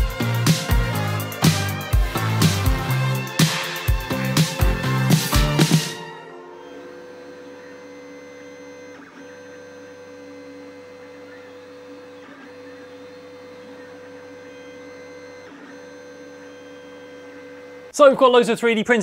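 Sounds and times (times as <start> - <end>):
printer motors and fans humming: 0.0 - 18.3.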